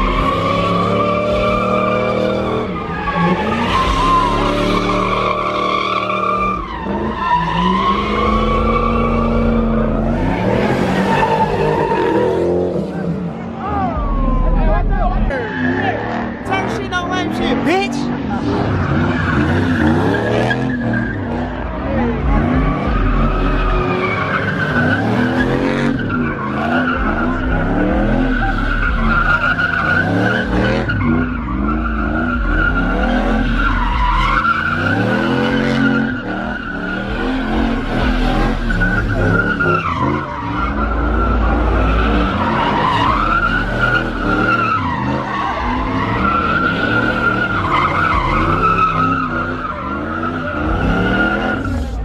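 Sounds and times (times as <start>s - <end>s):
car engine revving: 0.0s - 52.0s
tyres squealing: 22.0s - 52.0s.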